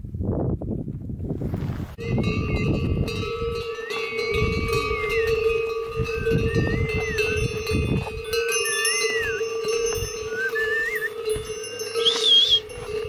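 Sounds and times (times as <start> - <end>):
yak bells ringing: 2.0 - 13.0
high whistling: 3.8 - 5.4, 6.1 - 7.6, 8.6 - 11.2, 11.9 - 12.7.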